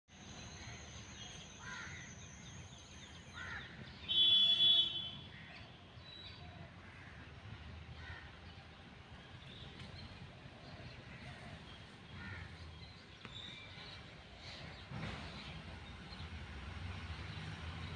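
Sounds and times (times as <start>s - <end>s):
crows cawing: 1.6s - 2.1s, 3.3s - 3.8s, 6.8s - 7.3s, 8.0s - 8.3s, 11.1s - 12.6s.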